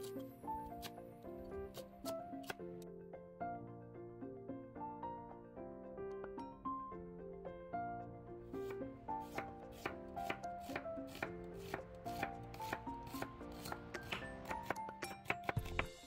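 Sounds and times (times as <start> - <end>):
light plucked background music: 0.0 - 16.0
knife chopping on cutting board: 8.6 - 16.0.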